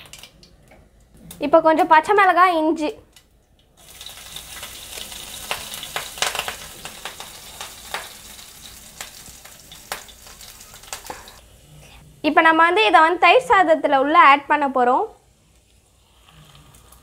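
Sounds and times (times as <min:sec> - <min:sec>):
spices crackling in hot oil: 0:03.2 - 0:11.5, 0:15.2 - 0:17.0.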